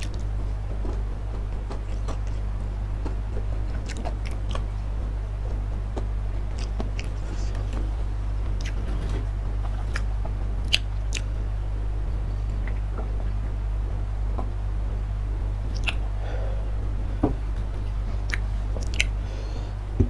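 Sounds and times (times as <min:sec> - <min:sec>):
low hum: 0:00.0 - 0:20.0
mouth chewing food: 0:03.8 - 0:04.7, 0:06.5 - 0:07.8, 0:09.6 - 0:11.4, 0:15.7 - 0:16.0, 0:18.2 - 0:19.2.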